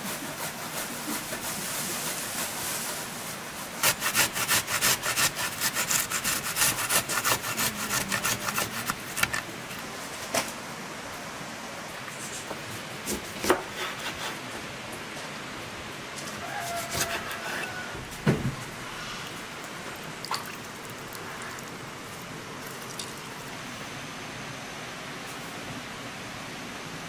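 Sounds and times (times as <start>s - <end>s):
steady rain hiss: 0.0s - 4.3s, 9.4s - 13.1s, 14.8s - 27.0s.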